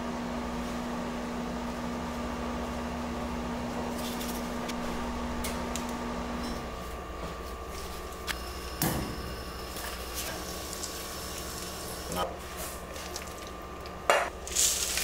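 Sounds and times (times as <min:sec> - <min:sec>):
low kitchen hum: 0:00.0 - 0:15.0.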